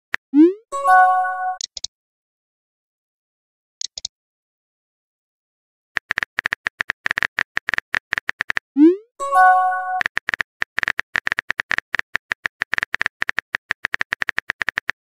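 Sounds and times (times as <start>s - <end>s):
keyboard typing clicks: 1.4s - 1.9s, 3.8s - 4.1s.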